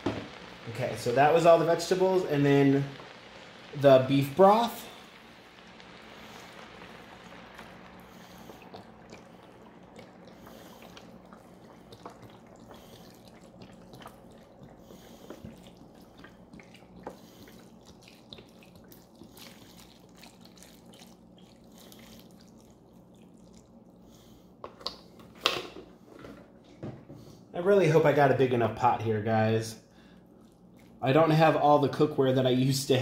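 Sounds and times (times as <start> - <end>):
small drips: 0.3 - 25.2, 30.0 - 31.8
liquid trickling into pot: 4.6 - 24.1.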